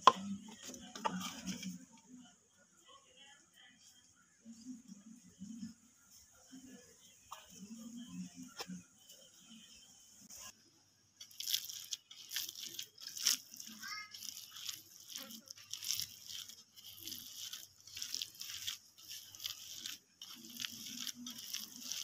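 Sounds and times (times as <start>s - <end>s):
fingers squishing meat mixture: 11.2s - 22.0s.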